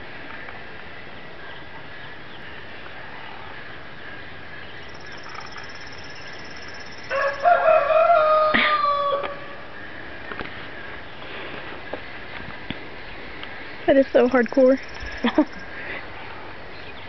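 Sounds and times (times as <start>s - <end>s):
rooster crowing: 7.0s - 9.8s.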